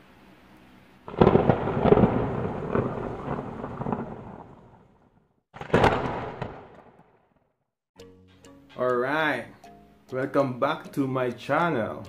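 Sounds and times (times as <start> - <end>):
thunder crack and rumble: 1.1 - 7.2.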